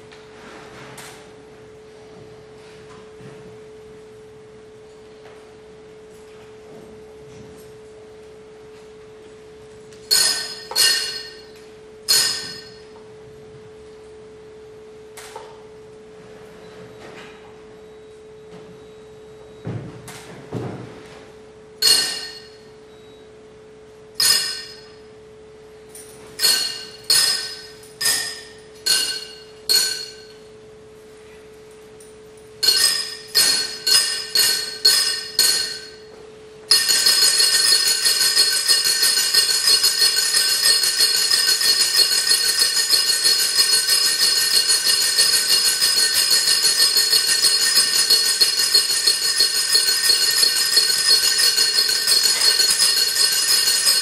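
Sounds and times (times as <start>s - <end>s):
ringing metallic strikes: 10.1s - 13.0s, 21.8s - 22.7s, 24.2s - 25.1s, 25.9s - 30.5s, 32.6s - 54.0s
steady held metallic tone: 10.1s - 13.0s, 24.2s - 30.6s, 32.0s - 54.0s
shimmering metallic jingle: 32.0s - 36.0s, 36.7s - 54.0s.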